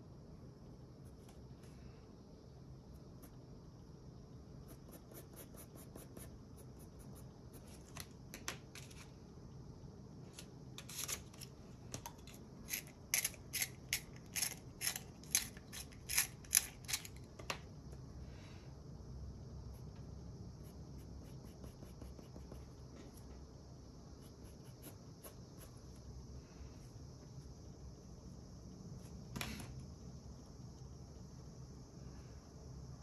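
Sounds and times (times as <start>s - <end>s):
faint pencil strokes on paper: 4.6s - 7.8s, 20.6s - 23.2s, 24.1s - 27.5s.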